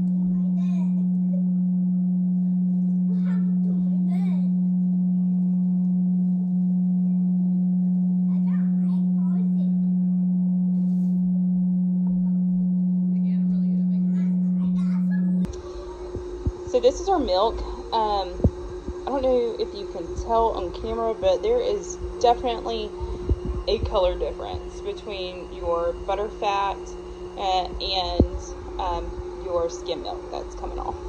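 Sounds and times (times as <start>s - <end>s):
cream separator motor humming: 11.8s - 31.0s.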